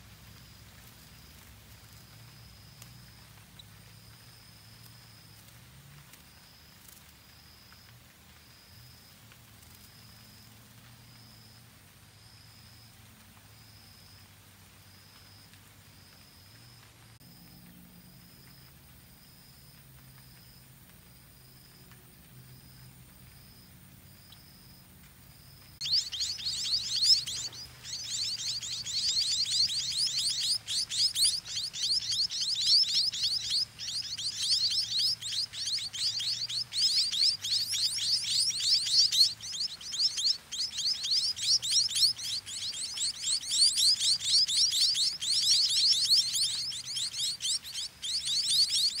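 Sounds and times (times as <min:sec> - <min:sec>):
chicks begging calls: 0:25.8 - 0:49.0.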